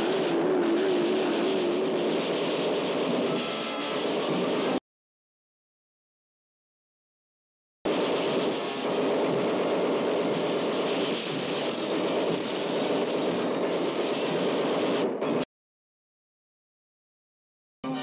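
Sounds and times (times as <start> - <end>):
submachine guns firing rapidly: 0.0 - 4.8, 7.9 - 15.1.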